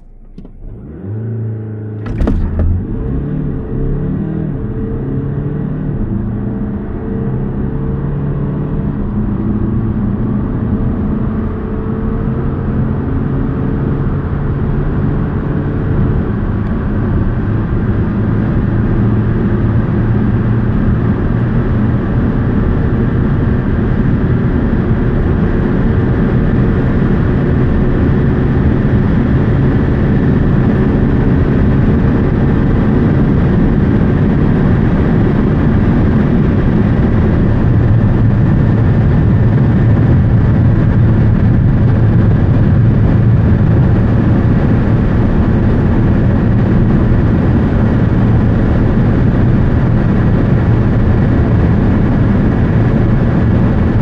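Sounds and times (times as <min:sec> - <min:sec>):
gearbox upshifts: 0:00.0 - 0:03.2
car engine at full throttle: 0:00.0 - 0:54.0
wind and road noise: 0:00.0 - 0:54.0.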